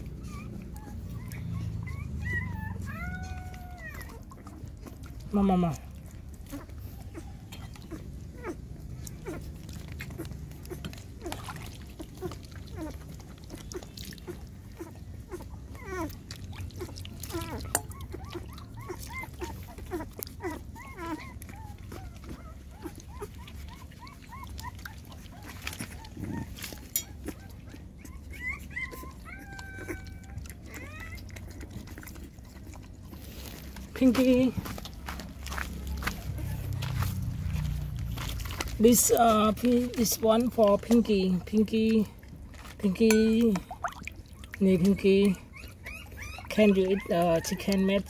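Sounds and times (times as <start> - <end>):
dog eating from metal bowl: 0.0 - 48.0
puppies whining: 0.0 - 48.0.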